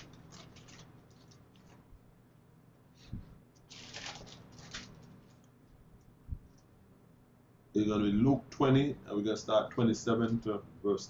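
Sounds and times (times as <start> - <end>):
paper pages rustling: 0.0 - 1.8, 3.7 - 5.5.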